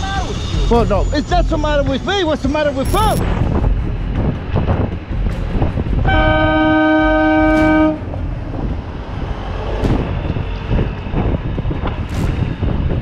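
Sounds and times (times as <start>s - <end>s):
wind buffeting microphone: 3.2s - 13.0s
vehicle horn chord: 6.1s - 8.0s.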